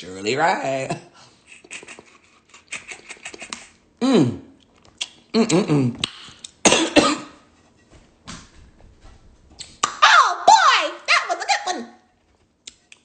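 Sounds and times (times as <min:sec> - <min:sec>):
wet smacking and sucking: 0:01.7 - 0:03.8, 0:04.6 - 0:06.6, 0:09.6 - 0:10.0.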